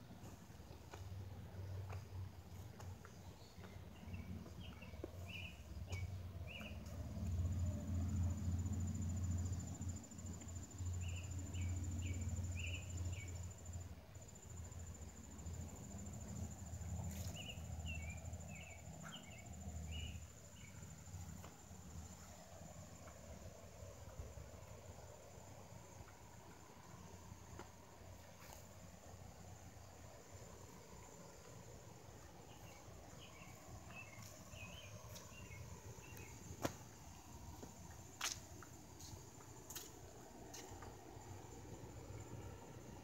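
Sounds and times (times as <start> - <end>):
quick insect chirps: 4.0 - 27.4, 28.0 - 43.0
insect trill: 6.5 - 27.3, 28.8 - 36.5.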